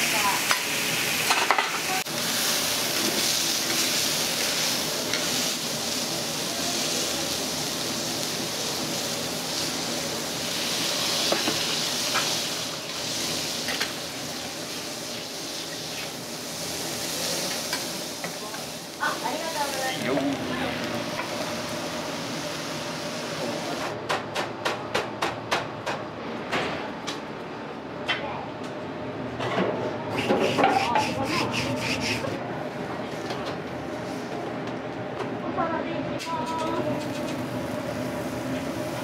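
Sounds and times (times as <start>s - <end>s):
steak sizzling on griddle: 0.0s - 23.8s.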